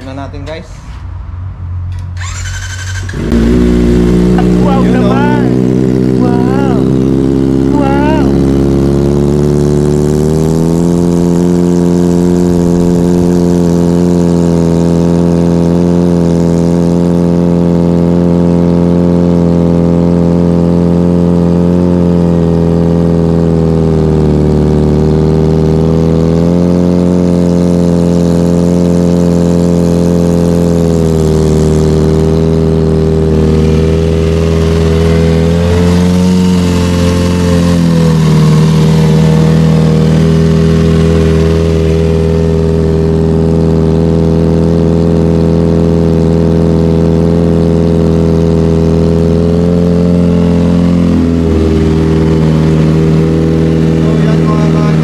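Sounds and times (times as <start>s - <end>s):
motorcycle engine idling: 1.9s - 55.0s.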